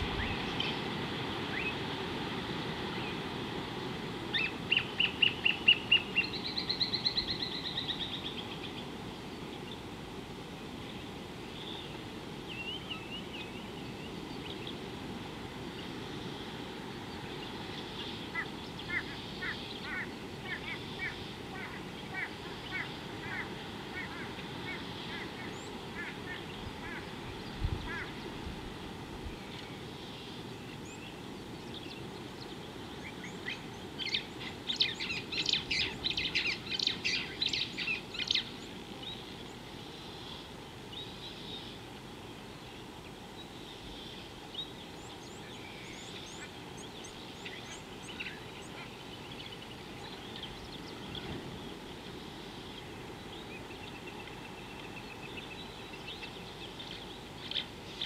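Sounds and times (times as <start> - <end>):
steady outdoor hiss: 0.0 - 58.0
birds chattering calls: 16.9 - 28.4, 29.5 - 39.6.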